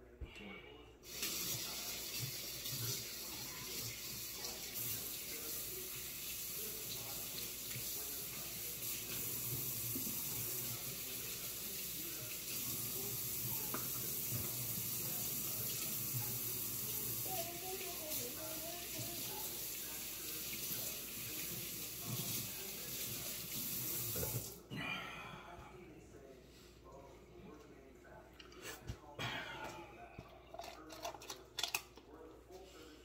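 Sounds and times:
tap water running into sink: 1.0 - 24.6.

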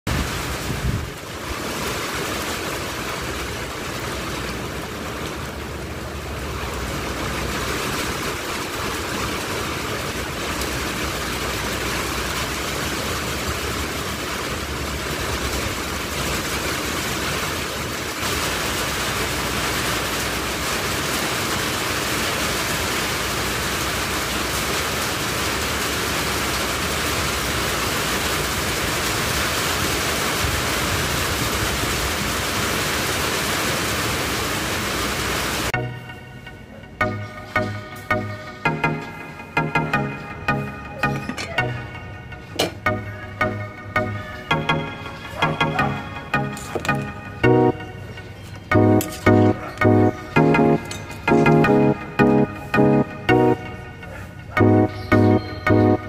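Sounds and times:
heavy rain splashing into puddle: 0.1 - 35.8.

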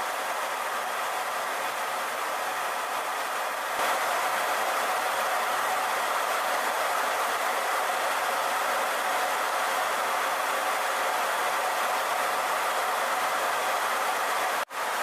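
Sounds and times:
jet engine in flight: 0.0 - 15.0.

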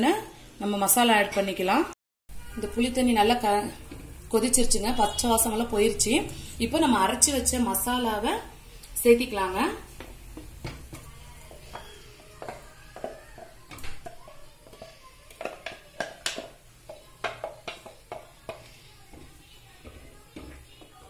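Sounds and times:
wooden spoon scraping and tapping: 3.3 - 6.2, 8.8 - 21.0.

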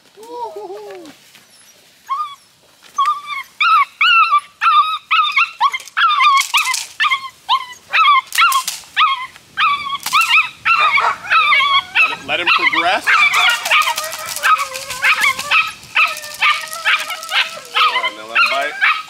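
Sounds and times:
puppy whining and yipping: 1.4 - 19.0.

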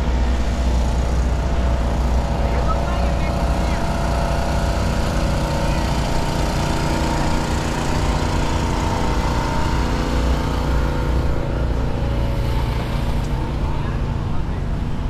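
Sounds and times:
street traffic: 0.0 - 15.0
vehicle engine running: 0.0 - 15.0.

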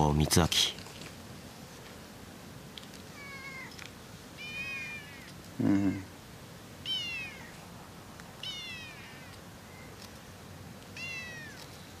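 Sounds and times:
cat meowing: 3.1 - 3.7, 4.4 - 5.3, 6.8 - 7.5, 8.4 - 9.3, 11.0 - 11.6.

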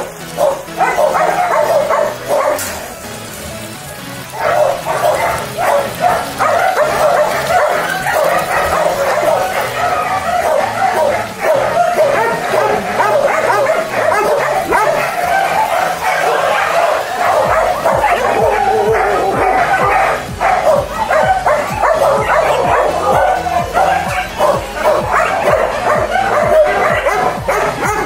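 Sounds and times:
many dogs barking: 0.0 - 28.0.

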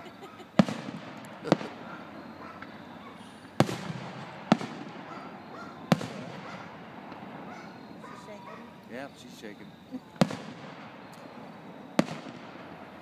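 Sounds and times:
firework shells bursting: 0.1 - 7.5, 10.0 - 13.0.

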